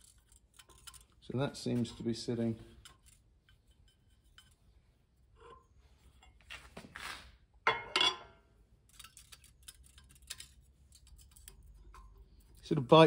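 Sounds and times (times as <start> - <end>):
metal scraping on metal: 0.0 - 6.6.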